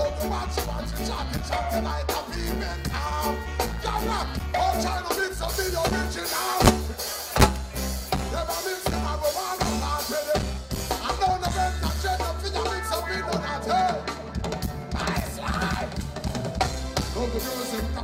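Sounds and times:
deep bass guitar notes: 0:01.0 - 0:15.1
drum kit hits: 0:06.6 - 0:08.3.

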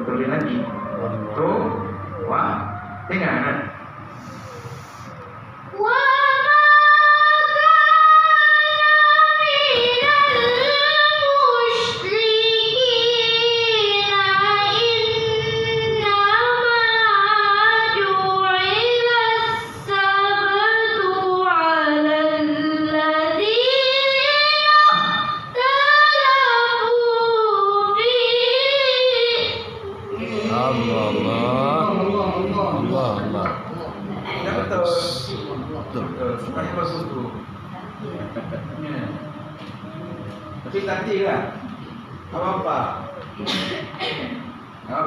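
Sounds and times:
girl reciting melodically: 0:03.8 - 0:35.5, 0:39.1 - 0:40.8
short breaths: 0:04.0 - 0:05.5.

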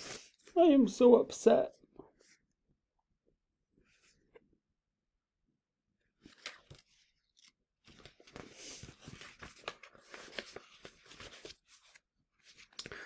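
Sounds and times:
paper pages rustling: 0:06.2 - 0:13.0.

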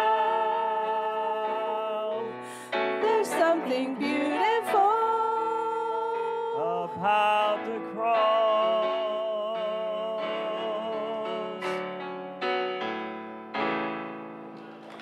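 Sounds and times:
vocal ensemble singing in harmony: 0:00.0 - 0:11.9
piano accompaniment: 0:00.0 - 0:15.0.

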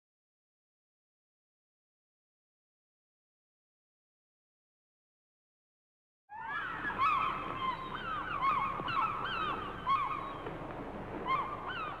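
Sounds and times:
gulls calling: 0:06.3 - 0:12.0.

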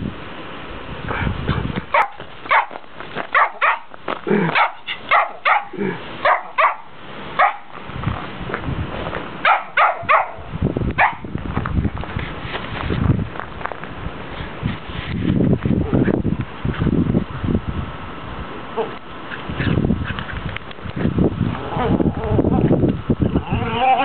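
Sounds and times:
small dog barking: 0:01.9 - 0:03.9, 0:04.5 - 0:07.7, 0:09.4 - 0:11.2.

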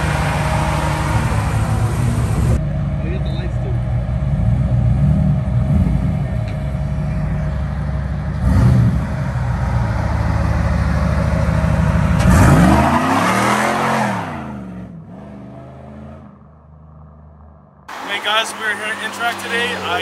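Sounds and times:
car engine running: 0:00.0 - 0:12.6.

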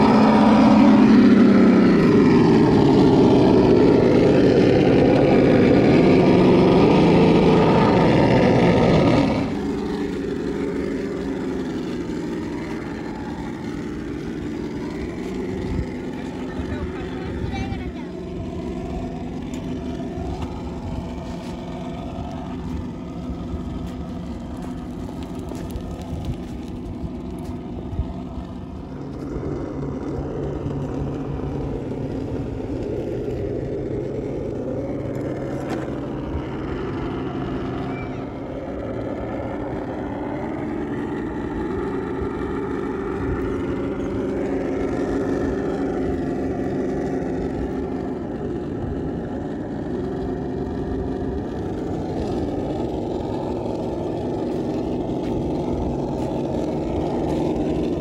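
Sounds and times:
simulated engine sound from speaker: 0:00.0 - 0:58.0.

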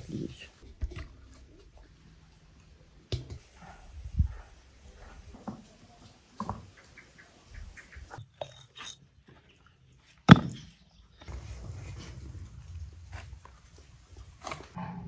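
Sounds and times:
stone knocking on stone: 0:10.3 - 0:10.6
scraping and shuffling: 0:11.2 - 0:14.8.

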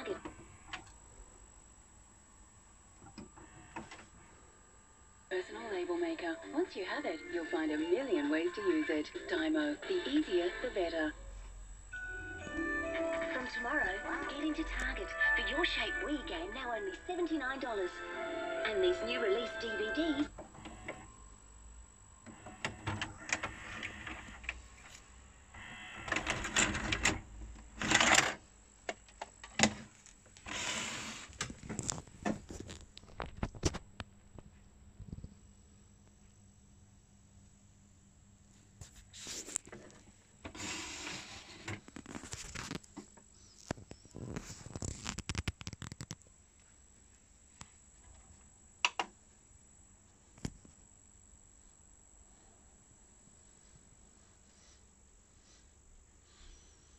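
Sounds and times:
tape mechanism clicks and whirring: 0:22.2 - 0:29.8.

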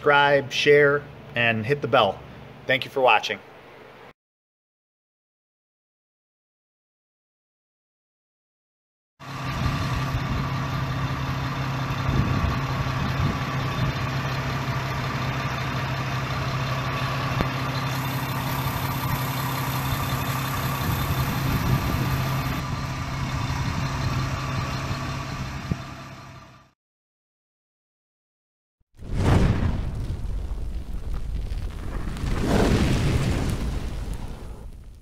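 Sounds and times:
car engine idling: 0:09.3 - 0:26.7.

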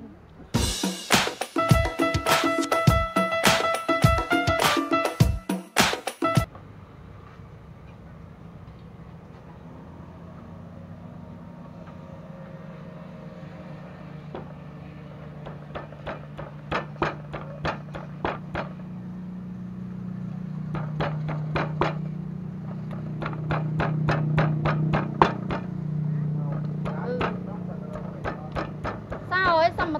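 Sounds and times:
low hum: 0:07.7 - 0:29.1
pestle pounding in wooden mortar: 0:15.4 - 0:18.8, 0:20.7 - 0:22.1, 0:22.7 - 0:25.8, 0:26.6 - 0:29.9.

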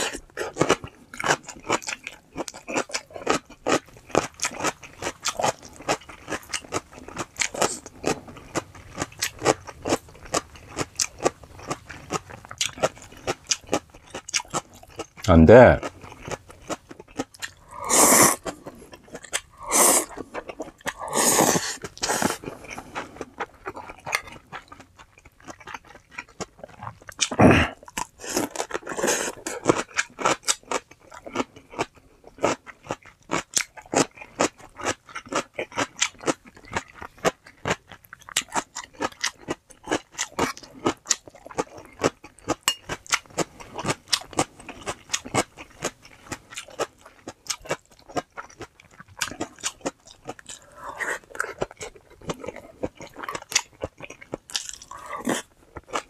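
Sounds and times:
crisp chewing and crunching: 0:00.0 - 0:56.0
noodles slurped: 0:17.5 - 0:23.0.

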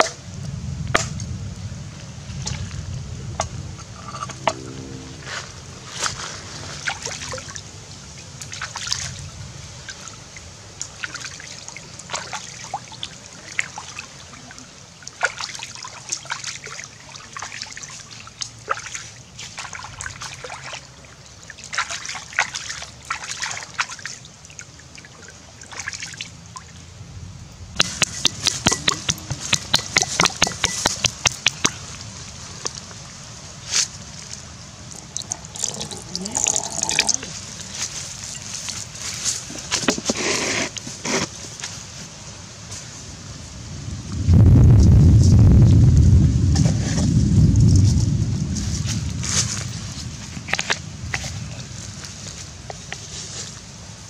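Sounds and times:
water splashing: 0:04.0 - 0:26.8, 0:27.6 - 0:41.7.

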